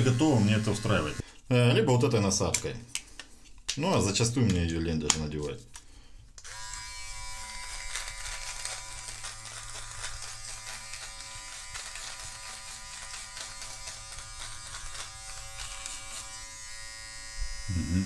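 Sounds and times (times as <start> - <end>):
electric beard trimmer buzzing: 0.0 - 1.2, 6.4 - 18.0.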